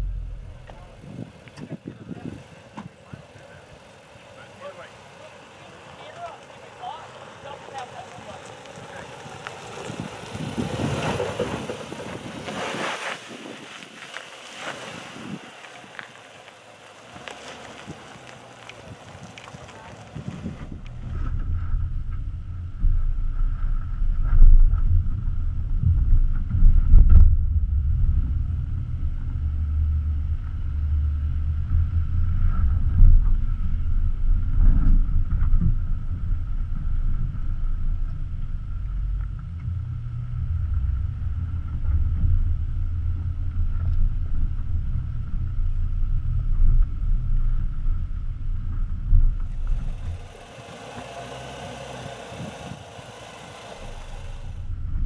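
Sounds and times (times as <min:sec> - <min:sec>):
vehicle rumbling over dirt: 0:00.0 - 0:55.0.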